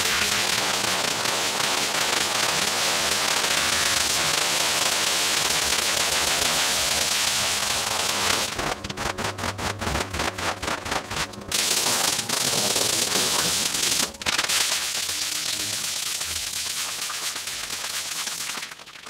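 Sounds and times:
pressure washer spraying water: 11.1s - 18.5s.

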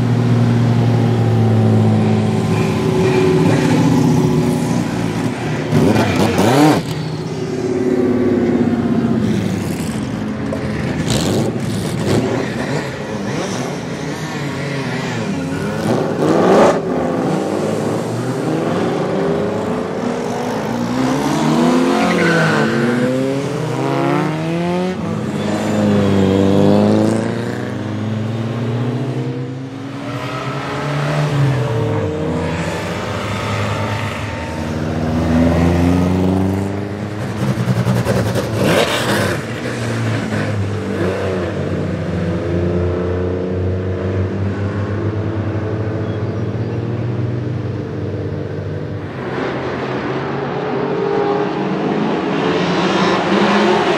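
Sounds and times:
race cars passing at speed: 0.0s - 53.9s.

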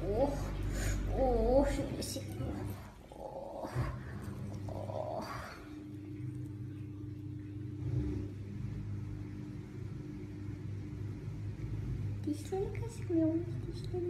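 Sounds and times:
kitten purring: 0.0s - 5.9s.

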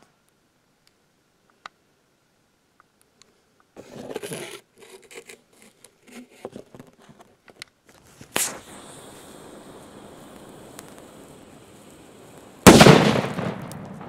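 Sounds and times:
firecracker scraping on tabletop: 3.8s - 12.5s.

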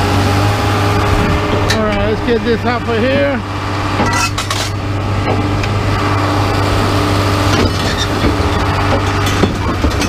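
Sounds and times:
engine idling: 0.0s - 10.0s
metal chair frames clanking: 1.5s - 2.2s, 3.9s - 5.5s, 7.5s - 10.0s.

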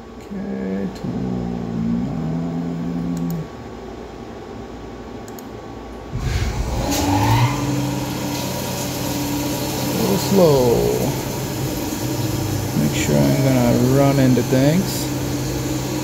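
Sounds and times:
mill spindle whine and hum: 0.0s - 16.0s
coolant hissing rush: 6.2s - 16.0s.

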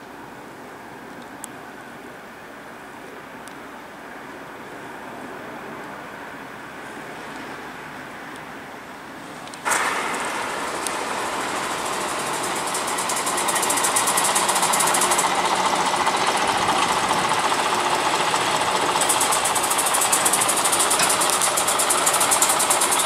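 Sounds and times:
diesel locomotive engine clattering: 9.6s - 23.0s.

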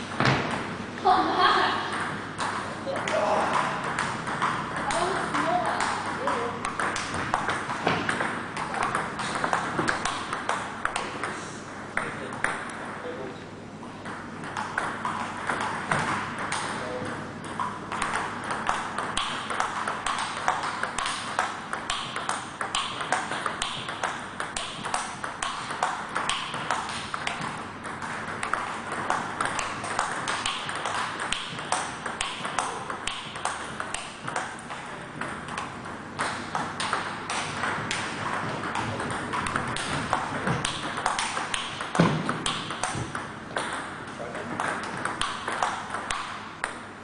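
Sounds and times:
table tennis ball clicking: 3.8s - 11.3s, 17.4s - 43.9s, 44.6s - 46.8s.

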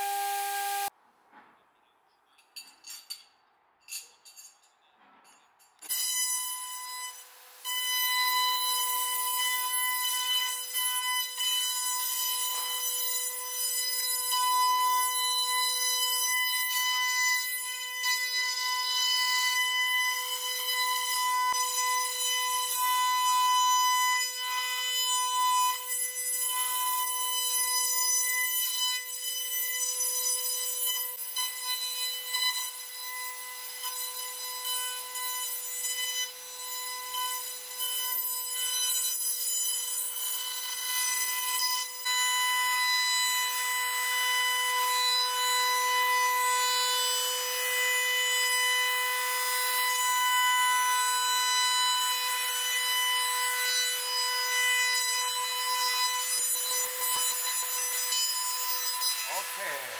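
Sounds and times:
router bit cutting wood: 0.0s - 0.9s, 5.8s - 59.9s
router spindle whining: 0.0s - 0.9s, 55.4s - 59.9s.

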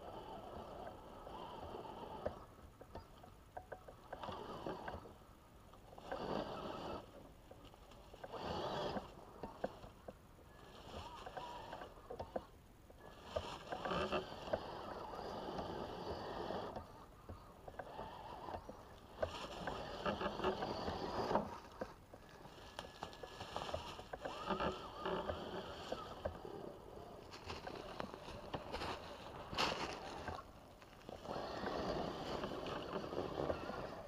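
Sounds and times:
electric motor whining: 4.0s - 5.2s, 5.8s - 7.2s, 8.0s - 34.0s
tires scrabbling over leaves: 13.0s - 15.1s, 17.9s - 34.0s.

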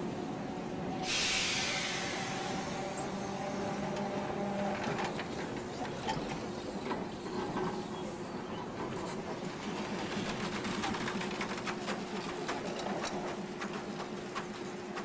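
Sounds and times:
streetcar hum: 0.0s - 15.0s
wheels clicking and rattling on track: 3.1s - 15.0s.

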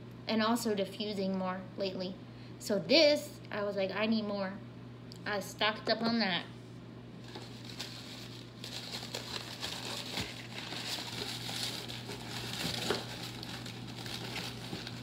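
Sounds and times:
low electrical hum: 0.0s - 15.0s
packing material rustling: 7.2s - 15.0s.

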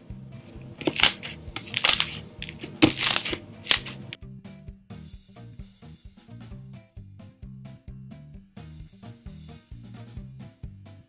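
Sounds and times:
background music: 0.0s - 11.0s
slime crunchy crackles: 0.8s - 4.1s.

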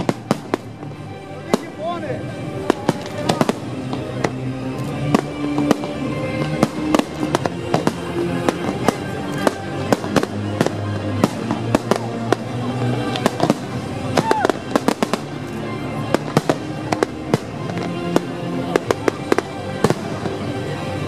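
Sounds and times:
fireworks bangs and cracks: 0.0s - 21.0s
music with long held notes: 0.0s - 21.0s.

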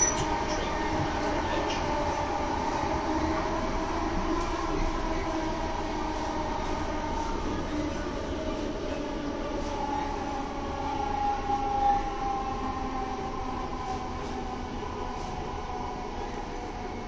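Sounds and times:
train traction whine: 0.0s - 17.0s
train wheels rumbling on track: 0.0s - 17.0s.

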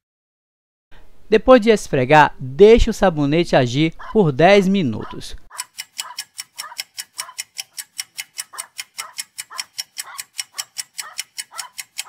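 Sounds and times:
mechanical clock ticking: 5.5s - 12.0s.

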